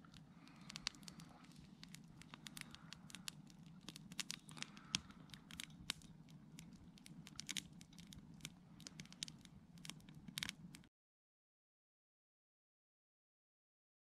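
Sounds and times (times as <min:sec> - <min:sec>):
campfire crackling: 0:00.0 - 0:10.9
fire pops and snaps: 0:00.0 - 0:10.9.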